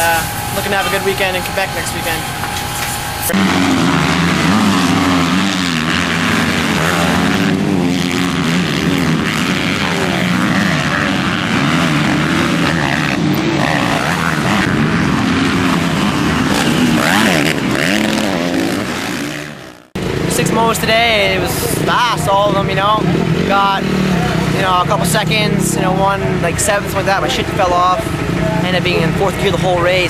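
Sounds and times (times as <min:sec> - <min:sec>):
motocross bike engines revving: 0:00.0 - 0:30.0.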